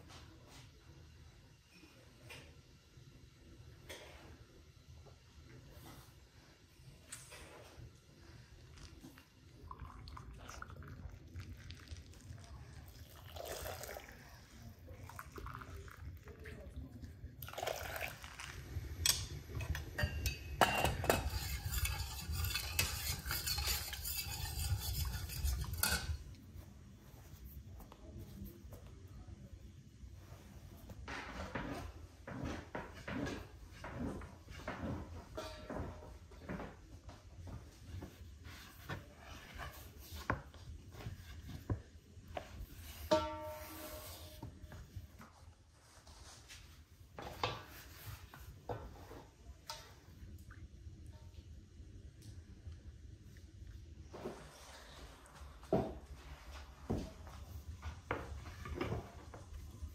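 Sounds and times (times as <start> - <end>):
metal utensils clinking on dishes: 19.0 - 26.3.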